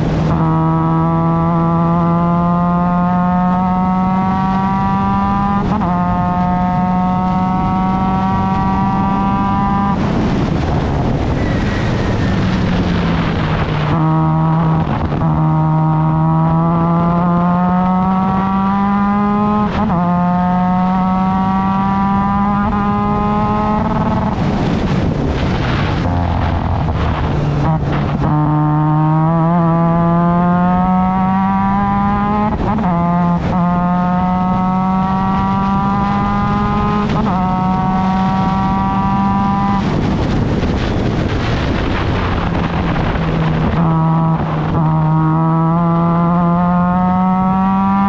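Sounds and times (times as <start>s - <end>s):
race car engine at full throttle: 0.0s - 48.0s
rush of noise while braking: 0.0s - 48.0s.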